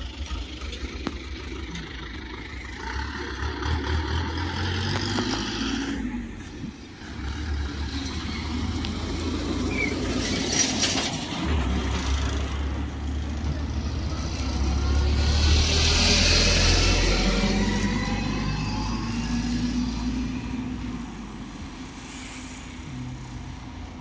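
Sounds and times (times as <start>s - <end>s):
low outdoor rumble: 0.0s - 24.0s
broad hiss: 21.9s - 23.0s.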